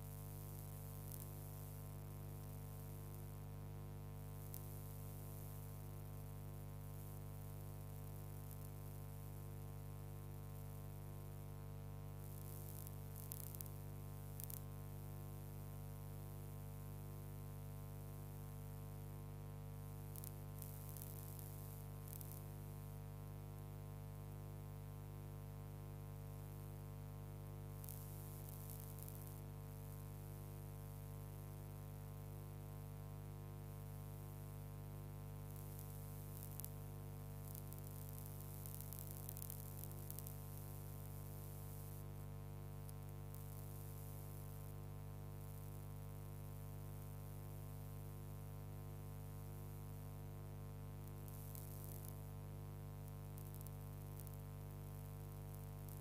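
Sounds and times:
faint crackles: 51.2s - 52.2s.

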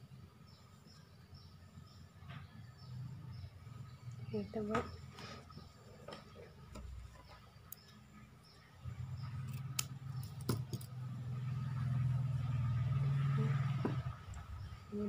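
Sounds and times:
sharp small clicks: 9.3s - 11.0s.

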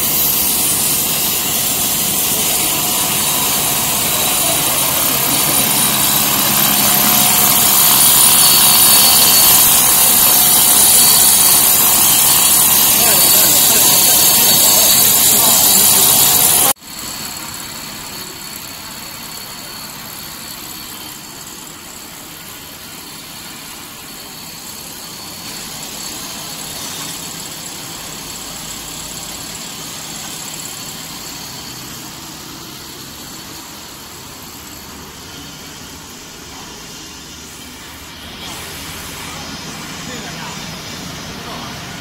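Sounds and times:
faint high whine: 0.0s - 16.8s
production line machinery noise: 0.0s - 42.0s.

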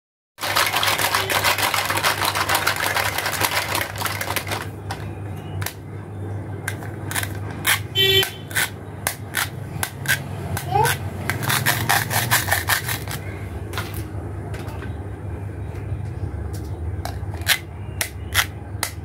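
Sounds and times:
plastic toy fruits clattering in basket: 0.4s - 5.0s.

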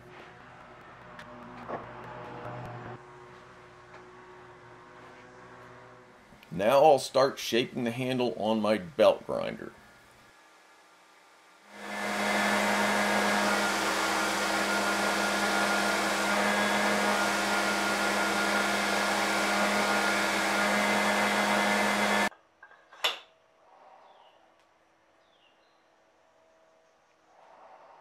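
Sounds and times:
belt grinder sanding wood: 11.7s - 22.3s.

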